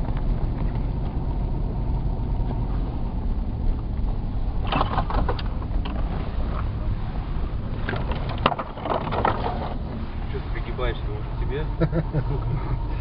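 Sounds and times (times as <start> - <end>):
car engine and tyre drone: 0.0 - 13.0
knocks and rattles: 4.6 - 6.2, 7.8 - 9.9.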